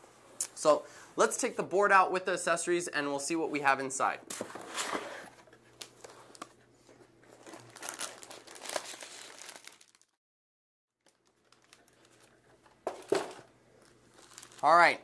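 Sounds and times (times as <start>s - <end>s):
plastic packaging crinkling: 7.2s - 10.2s, 11.0s - 15.0s.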